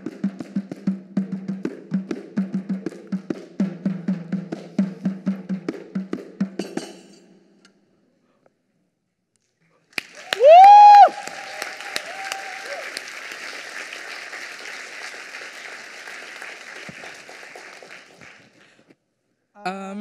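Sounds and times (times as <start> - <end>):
high cheer from crowd: 10.0 - 18.4
audience applause: 10.0 - 18.8.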